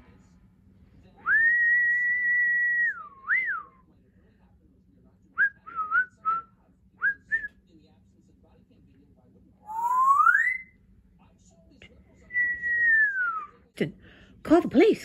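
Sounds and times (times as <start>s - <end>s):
parrot whistling: 9.7s - 10.8s.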